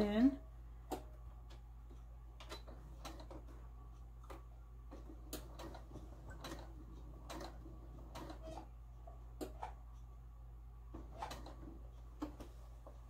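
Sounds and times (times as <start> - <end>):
low steady hum: 0.0 - 13.0
sewing machine stitching: 2.5 - 3.6, 4.9 - 8.7, 10.9 - 12.5.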